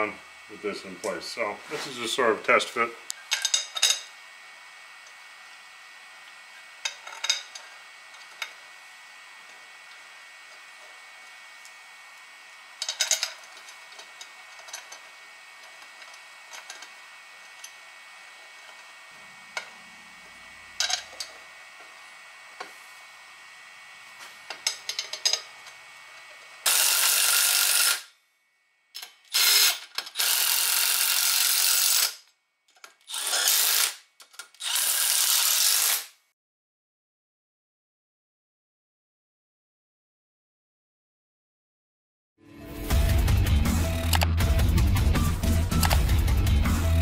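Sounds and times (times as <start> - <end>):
hissing power tool bursts: 26.6 - 28.1, 29.3 - 32.2, 33.1 - 34.0.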